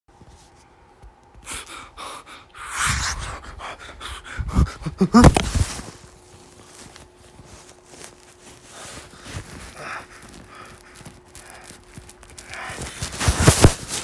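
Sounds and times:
person gasping and breathing hard: 1.4s - 5.8s, 8.9s - 13.8s.

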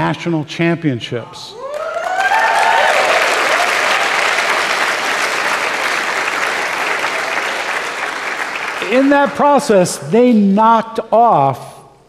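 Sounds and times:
people whooping: 1.6s - 5.3s
audience applauding: 1.6s - 9.6s.

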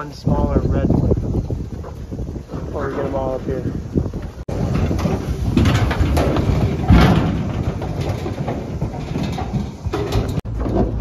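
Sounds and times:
loud metal bang: 4.5s - 10.5s
metal gates clanging and rattling: 4.5s - 11.0s.

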